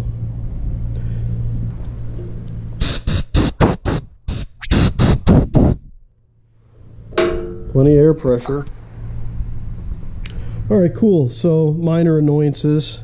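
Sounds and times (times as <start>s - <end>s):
steady low hum: 0.0s - 13.0s
compressed air hissing bursts: 2.8s - 5.9s.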